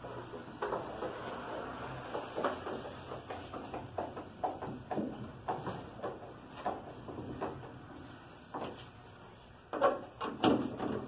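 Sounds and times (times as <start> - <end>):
hand tools knocking on metal: 0.0 - 7.9.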